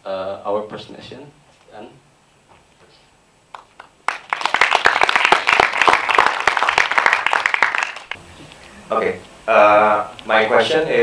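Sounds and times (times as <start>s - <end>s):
audience applauding: 3.5s - 8.2s.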